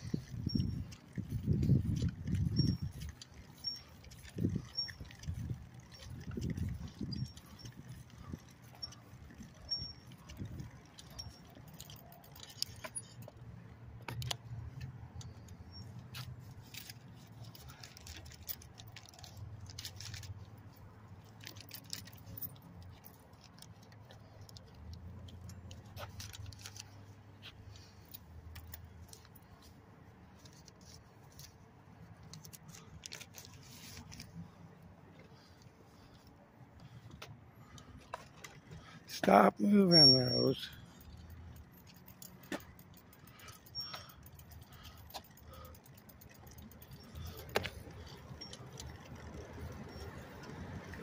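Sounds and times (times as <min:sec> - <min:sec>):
bicycle jingling and clicking: 0:00.0 - 0:51.0.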